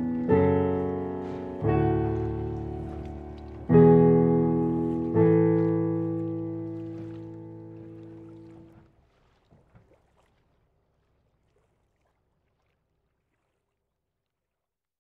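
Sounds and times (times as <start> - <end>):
background music: 0.0 - 8.2
shallow water lapping: 0.0 - 14.6
soft water splashes: 0.0 - 14.7.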